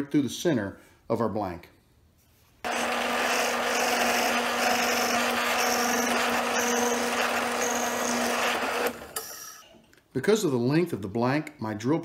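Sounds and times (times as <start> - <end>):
drill bit cutting wood hiss: 2.7 - 9.6
drill press motor hum: 2.7 - 9.7.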